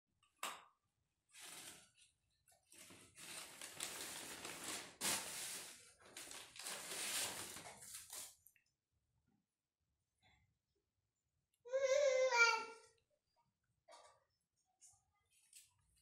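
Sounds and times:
paper crinkling and rustling: 1.3s - 8.4s.

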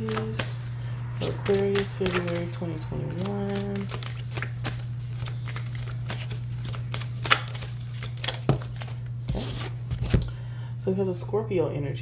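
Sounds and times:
cards shuffling: 0.0s - 10.3s
steady low hum: 0.0s - 12.0s.

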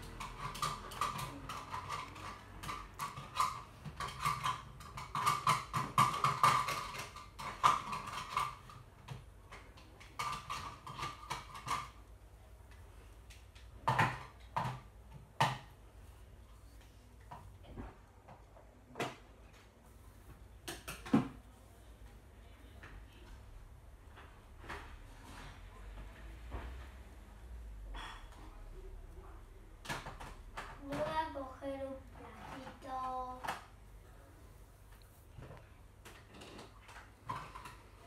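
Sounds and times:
toy utensils clattering on toy pot: 0.0s - 12.0s.

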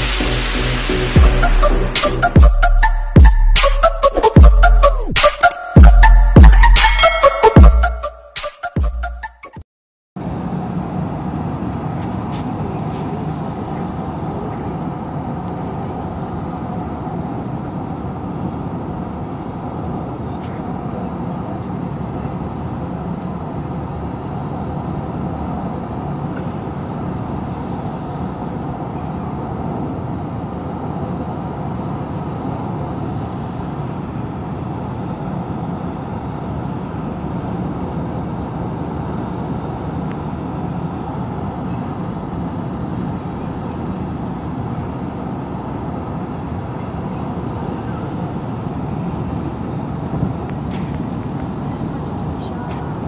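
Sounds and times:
car road noise from inside: 47.1s - 53.0s.

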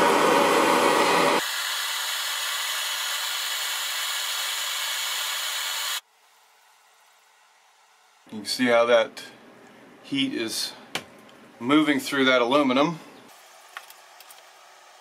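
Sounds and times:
gas torch flame hissing: 0.0s - 6.0s.

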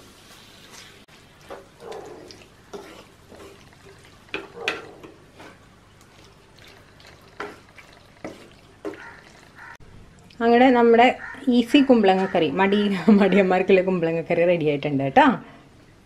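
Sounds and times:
wooden spatula scraping clay pot: 1.4s - 9.8s.

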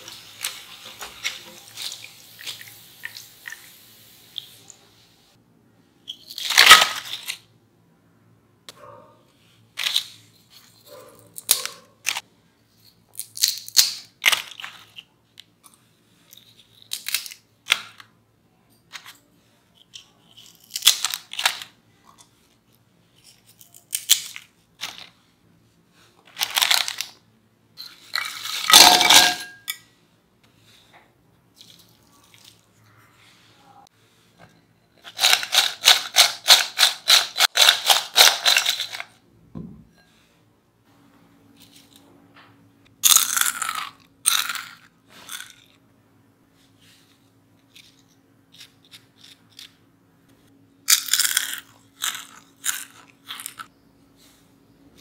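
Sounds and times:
potato chips crunching: 43.0s - 45.7s, 50.9s - 53.7s.

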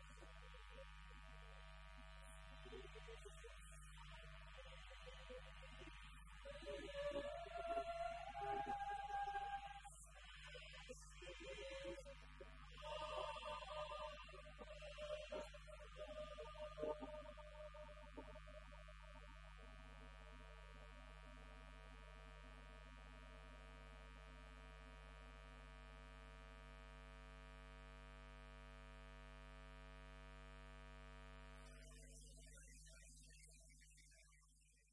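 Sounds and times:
electrical mains hum: 0.0s - 32.4s
choir singing: 6.4s - 18.6s.

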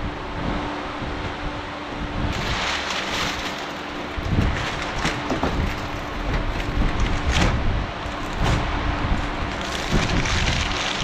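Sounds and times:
electric fans whooshing: 0.0s - 11.0s
plastic wrapping crinkling: 2.3s - 7.4s, 9.2s - 11.0s.

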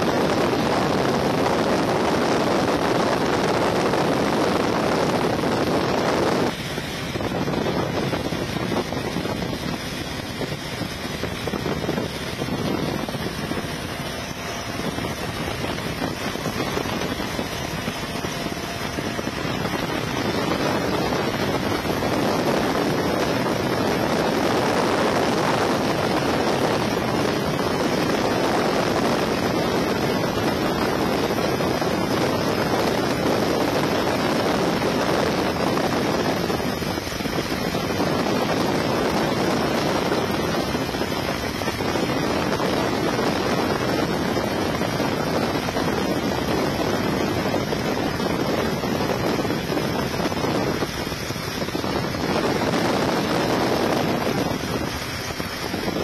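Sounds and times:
helicopter in flight: 0.0s - 56.0s.

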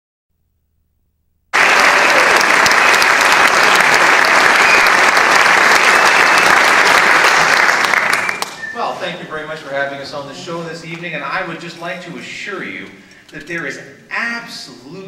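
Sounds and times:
audience applause: 1.5s - 8.6s.

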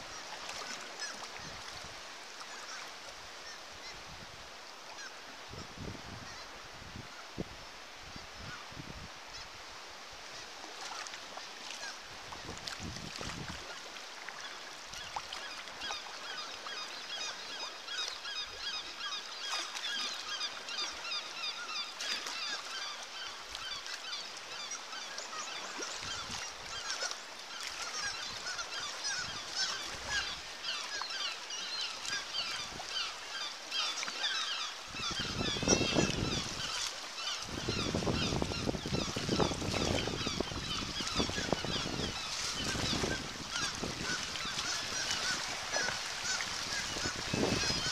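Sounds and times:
seabird colony calling: 15.8s - 47.9s.

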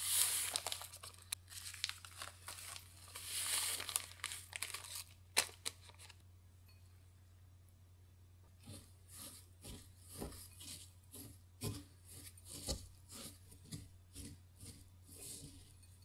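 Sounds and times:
paper packet crinkling: 0.0s - 6.2s.

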